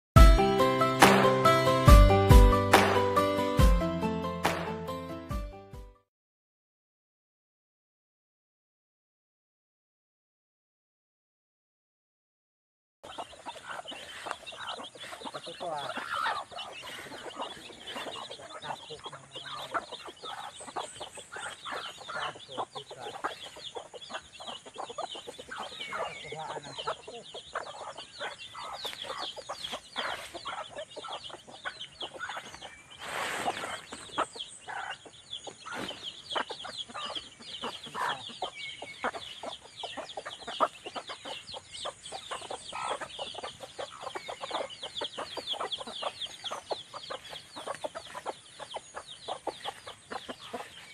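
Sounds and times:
chickens clucking: 0:13.0 - 0:50.9
chicks peeping: 0:13.0 - 0:50.9.

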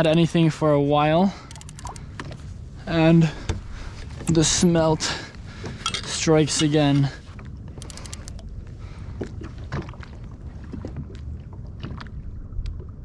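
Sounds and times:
wind rumbling on microphone: 0:02.0 - 0:13.0
water against kayak hull: 0:05.3 - 0:13.0.

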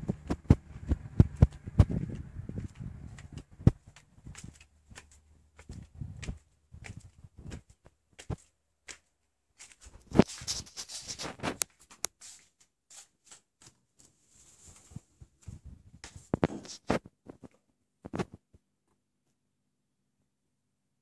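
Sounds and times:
footsteps on tiled floor: 0:00.0 - 0:17.6.

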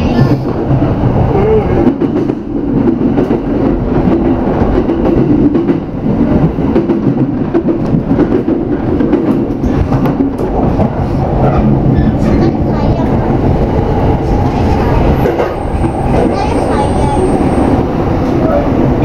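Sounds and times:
train rumble: 0:00.0 - 0:19.0.

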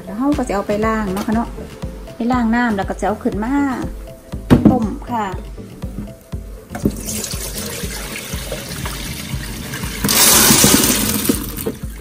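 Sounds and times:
water splashing into metal sink: 0:06.7 - 0:12.0
beans and water poured into colander: 0:07.0 - 0:11.9.

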